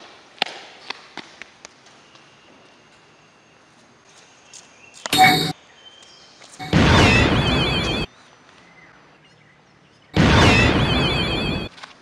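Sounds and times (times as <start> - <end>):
loud squeaky burst: 5.1 - 5.5, 6.6 - 8.1, 10.2 - 11.7.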